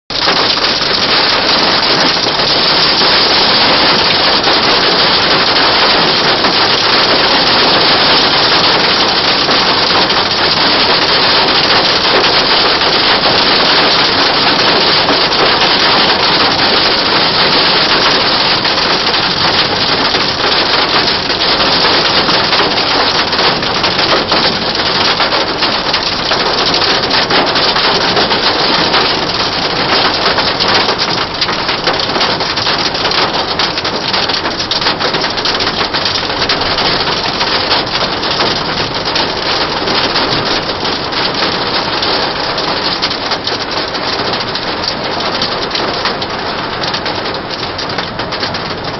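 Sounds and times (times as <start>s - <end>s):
hail and rain drumming on car roof: 0.1s - 48.9s.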